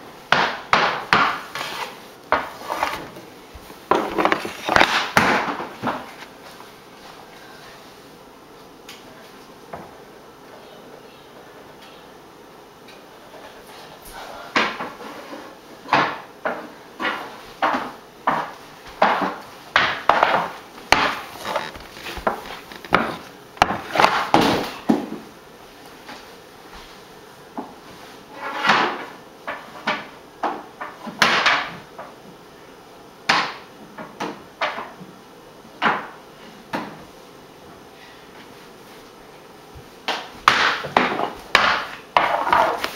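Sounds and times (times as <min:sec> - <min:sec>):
hockey stick knocking on wood floor: 0:00.3 - 0:06.1, 0:15.9 - 0:25.2, 0:40.1 - 0:42.9
stick scraping on floor: 0:01.1 - 0:06.6, 0:14.8 - 0:15.6, 0:17.0 - 0:24.3, 0:28.3 - 0:29.1, 0:40.6 - 0:42.9.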